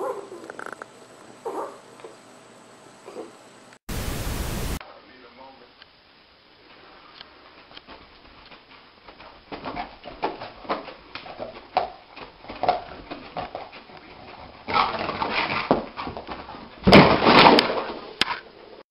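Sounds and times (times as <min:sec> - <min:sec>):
loud crash into wall: 0:16.8 - 0:18.0.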